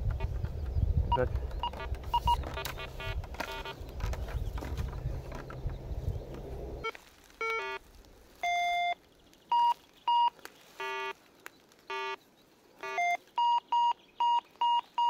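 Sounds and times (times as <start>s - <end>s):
low rumbling noise: 0.0s - 6.9s
metal detector beeps: 1.1s - 3.8s, 6.8s - 7.8s, 8.4s - 11.2s, 11.9s - 12.2s, 12.8s - 15.0s.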